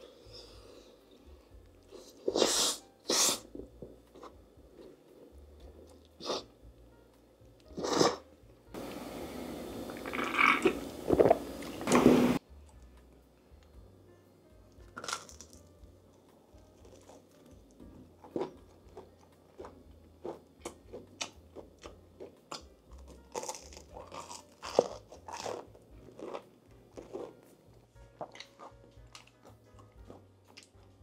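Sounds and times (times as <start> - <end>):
chewing and crunching: 9.9 - 11.8, 14.8 - 30.9.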